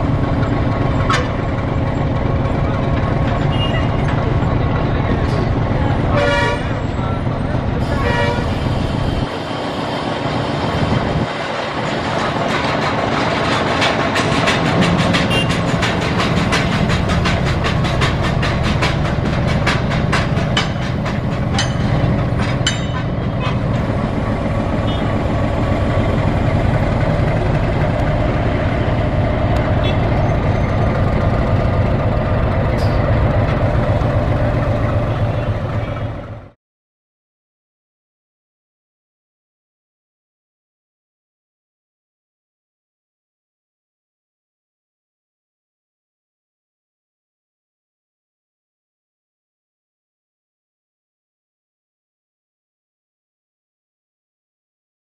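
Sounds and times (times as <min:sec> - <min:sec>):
steam train rumbling by: 0:00.0 - 0:36.6.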